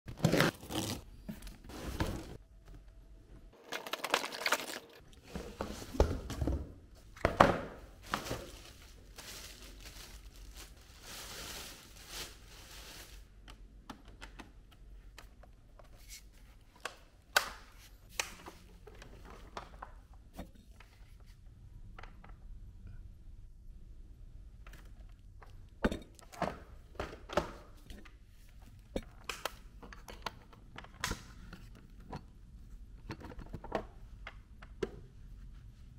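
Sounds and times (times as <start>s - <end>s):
plastic wrapping tearing and crinkling: 0.2s - 1.0s, 8.1s - 13.3s.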